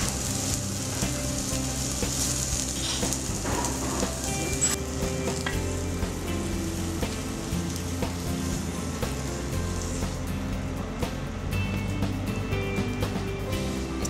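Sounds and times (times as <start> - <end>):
eggs sizzling in a frying pan: 0.0 - 11.0.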